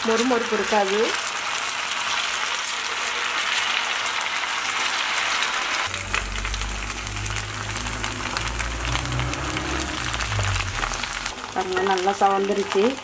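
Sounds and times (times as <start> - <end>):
batter sizzling in hot oil: 0.0 - 13.0
low rumble: 5.9 - 11.3.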